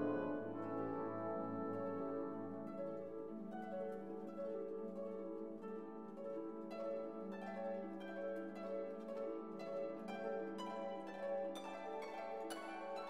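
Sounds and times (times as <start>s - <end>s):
plucked-string melody: 0.0s - 5.6s.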